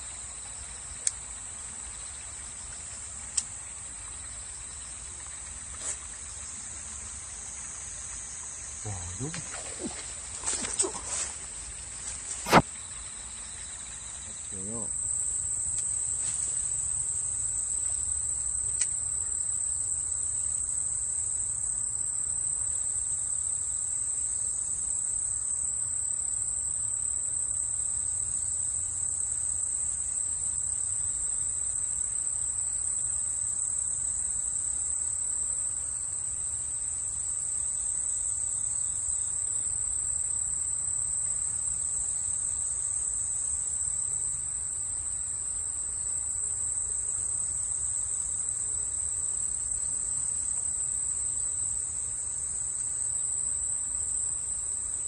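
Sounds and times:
insect chorus: 0.0s - 55.0s
faint click: 1.0s - 1.2s, 3.3s - 3.6s, 18.7s - 19.0s.

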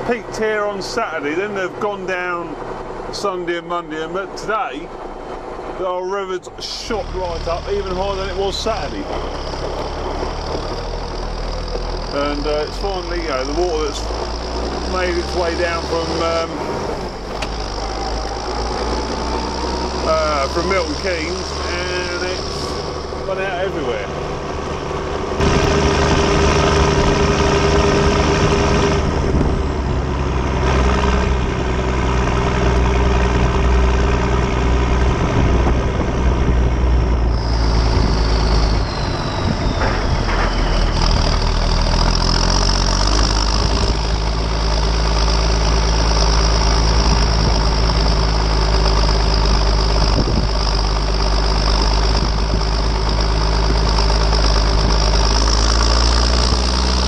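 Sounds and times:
tractor diesel engine running: 0.0s - 57.0s
turbo whine falling in pitch: 37.2s - 41.7s.

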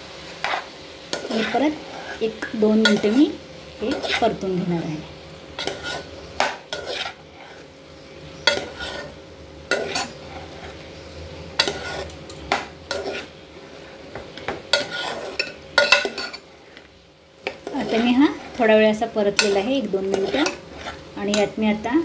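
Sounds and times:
metal spoon scraping a pot: 0.4s - 3.2s, 3.8s - 4.4s, 5.6s - 7.7s, 8.4s - 10.8s, 11.6s - 16.8s, 17.6s - 18.7s, 19.4s - 21.6s.

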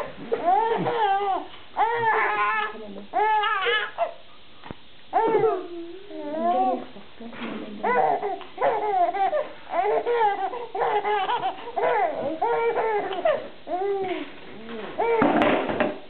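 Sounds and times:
baby laughing: 7.9s - 13.5s.

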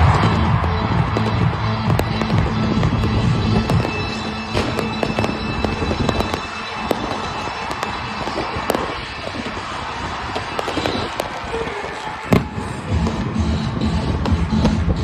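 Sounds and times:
fireworks crackling and popping: 0.0s - 15.0s.

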